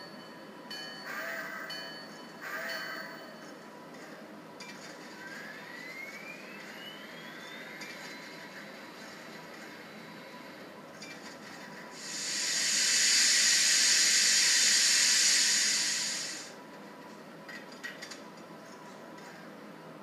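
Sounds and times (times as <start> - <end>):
model locomotive steam hissing: 11.9 - 16.6.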